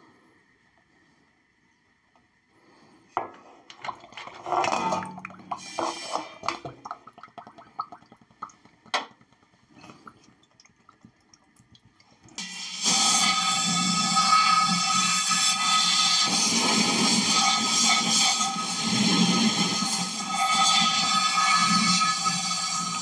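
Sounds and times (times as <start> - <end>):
oil dripping into metal pan: 6.4 - 12.5.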